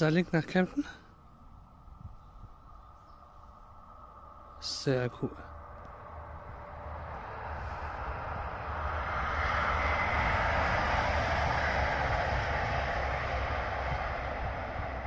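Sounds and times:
diesel train engine: 3.3 - 15.0
train wheels on rails: 5.8 - 15.0.

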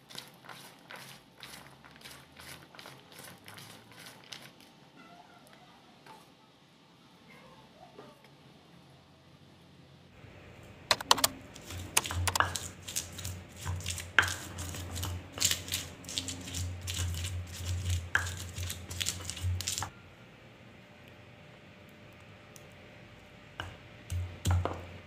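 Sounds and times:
knife tapping on stone: 11.9 - 12.7, 23.6 - 24.8.

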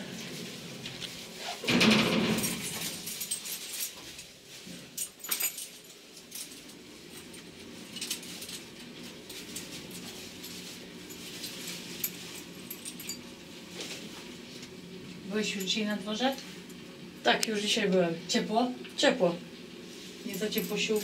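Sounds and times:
metallic jingles: 2.2 - 4.0, 5.0 - 13.4, 20.2 - 21.0.

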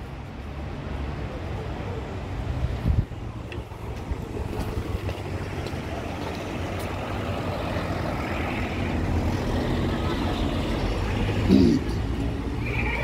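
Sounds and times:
car passing: 0.0 - 13.0
street traffic: 0.0 - 13.0
wind rumbling on microphone: 2.7 - 5.5.

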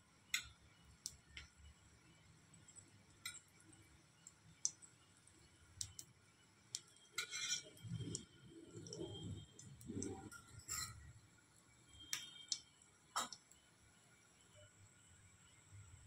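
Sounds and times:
spoon scraping a pan: 7.2 - 8.2, 10.2 - 11.1.

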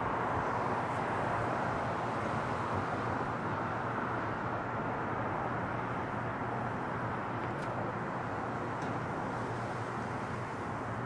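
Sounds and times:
jet engines at takeoff: 0.0 - 11.0.

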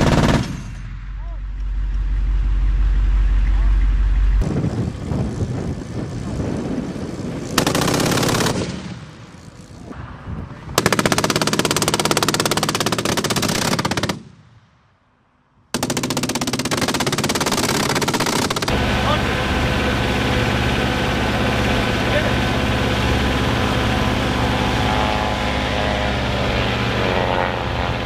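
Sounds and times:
machine gun firing bursts: 0.0 - 0.7, 7.5 - 9.1, 10.8 - 14.3, 15.7 - 18.9.

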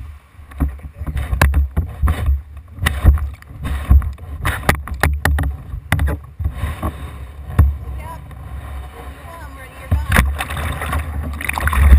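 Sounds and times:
paddle blades splashing water: 0.0 - 11.9
sharp knocks and clicks: 0.5 - 8.4.

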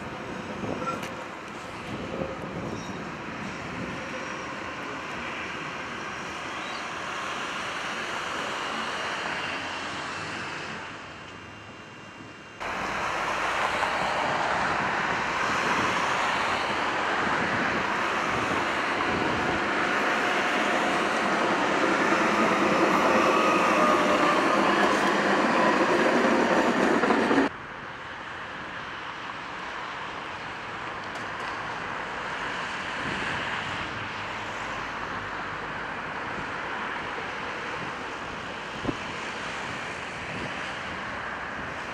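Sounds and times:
tram wheels running on rails: 0.0 - 27.5
tram whine sliding in pitch: 0.0 - 27.5
distant tram running: 0.0 - 41.9.

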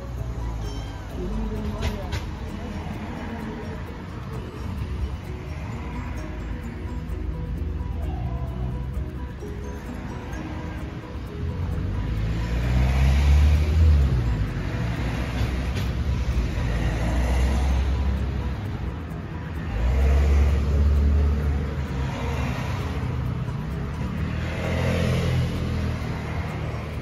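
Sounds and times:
cars passing with low rumble: 0.0 - 27.0.

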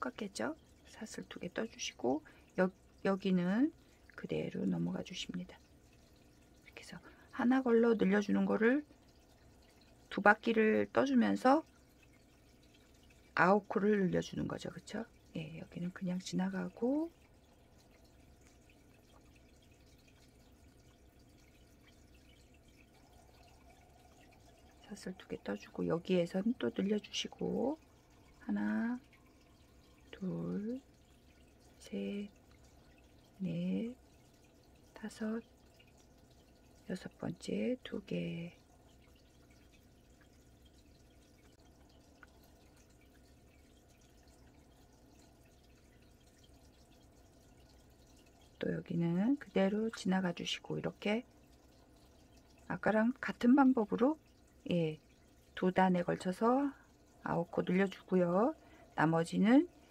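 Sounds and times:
low room hum: 0.0 - 59.9
faint ticks: 16.7 - 48.6.

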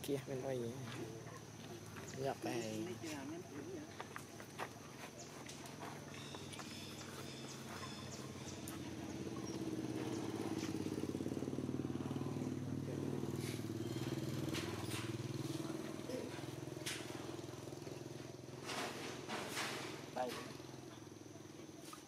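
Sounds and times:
engine running: 5.4 - 21.3.

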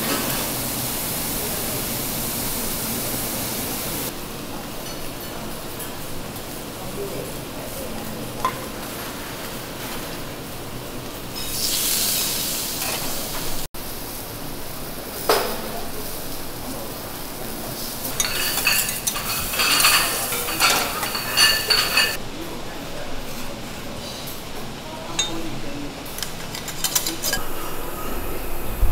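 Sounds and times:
food sizzling on griddle: 0.0 - 4.1, 11.4 - 16.3
metal spatulas scraping griddle: 18.0 - 22.2.

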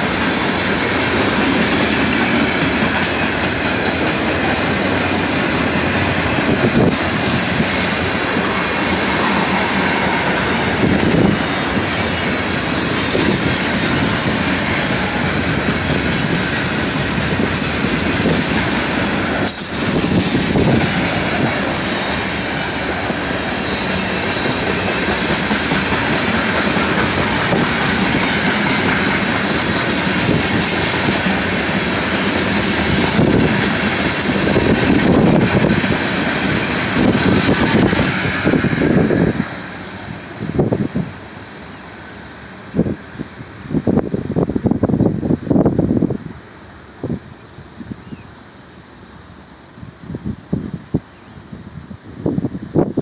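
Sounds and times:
train wheels clattering over rail joints: 0.0 - 41.2.

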